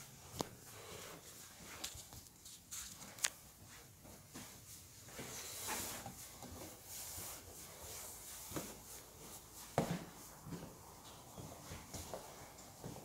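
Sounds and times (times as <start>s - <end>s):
footsteps on hard floor: 8.4s - 13.0s.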